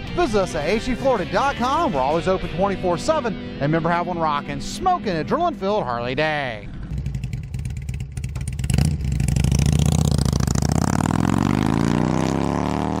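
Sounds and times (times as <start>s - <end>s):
motorcycle engine revving: 6.6s - 13.0s.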